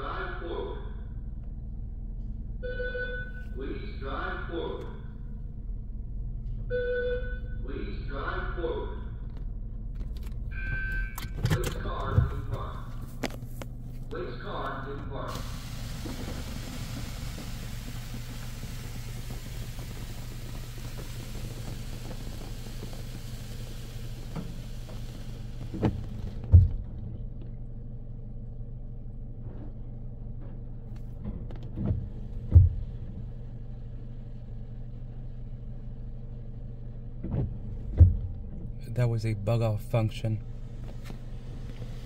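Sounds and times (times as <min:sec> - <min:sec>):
steady low hum: 0:00.0 - 0:42.0
water spray hitting car: 0:15.3 - 0:26.4
loud thumps: 0:37.2 - 0:38.4.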